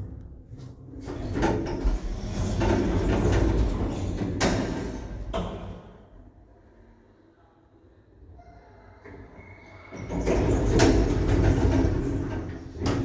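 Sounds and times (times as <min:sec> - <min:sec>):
lift doors rumbling open: 0:00.8 - 0:05.8, 0:08.5 - 0:13.0.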